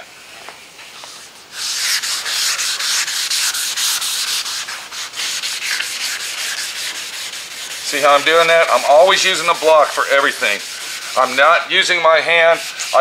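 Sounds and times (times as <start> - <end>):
sandpaper rubbing on panel: 0.9 - 13.0.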